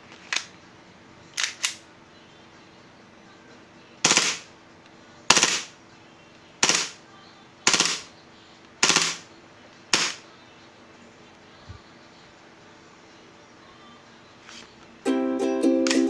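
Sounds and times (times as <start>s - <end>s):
airsoft pistol shots: 4.0s - 4.5s, 5.3s - 5.7s, 6.6s - 7.0s, 7.7s - 8.1s, 8.8s - 9.3s, 9.9s - 10.2s.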